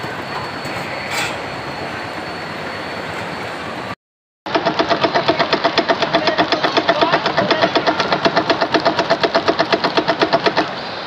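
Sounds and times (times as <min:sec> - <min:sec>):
machine pulsing rhythmically: 0:04.5 - 0:10.7.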